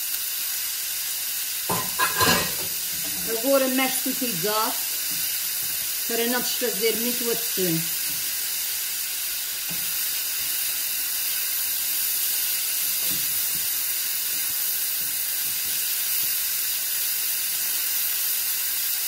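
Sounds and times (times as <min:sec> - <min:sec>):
food sizzling in a frying pan: 0:00.0 - 0:19.0.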